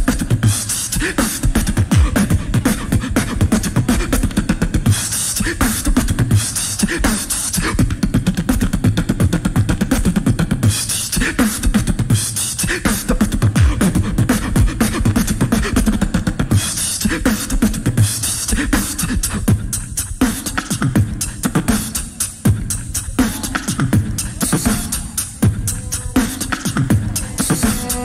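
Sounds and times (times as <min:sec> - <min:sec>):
beatbox performance: 0:00.0 - 0:28.0
looped beat: 0:00.0 - 0:28.0.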